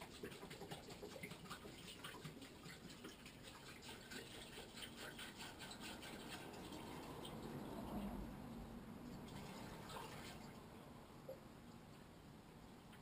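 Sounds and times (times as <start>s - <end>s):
water glugging from a jug: 0.0s - 7.9s, 9.1s - 10.6s.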